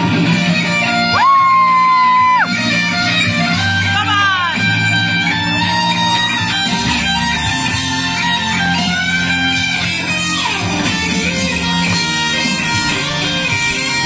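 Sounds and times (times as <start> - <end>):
electric guitar solo: 0.0 - 14.0.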